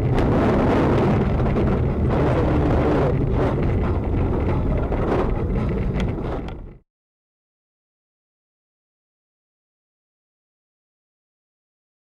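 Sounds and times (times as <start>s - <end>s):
car engine and tyre rumble: 0.0s - 6.8s
wind on microphone: 0.0s - 6.8s.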